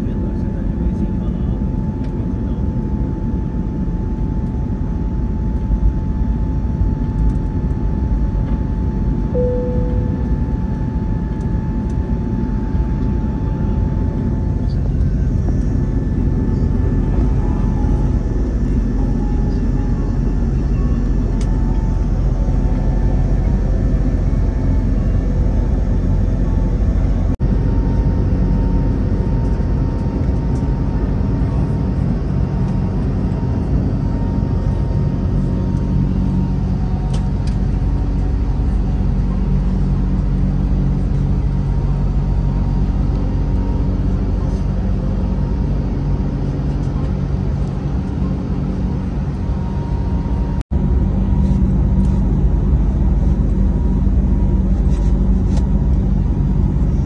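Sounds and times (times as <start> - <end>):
airplane cabin engine drone: 0.0 - 57.0
faint steady tone: 9.3 - 11.5.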